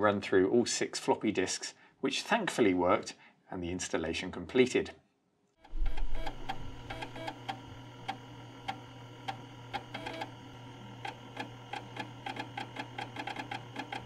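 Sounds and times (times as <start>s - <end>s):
floppy drive motor humming: 5.7s - 14.0s.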